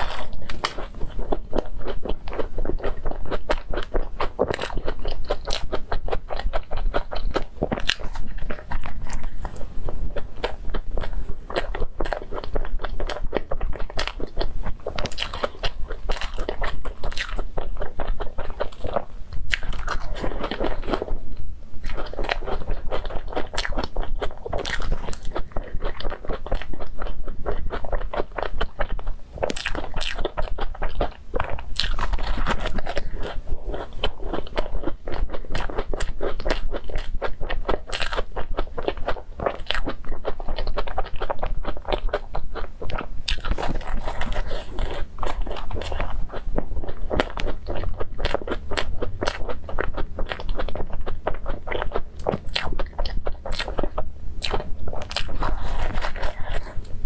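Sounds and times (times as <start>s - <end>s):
chewing crunchy pastry: 0.0s - 57.0s.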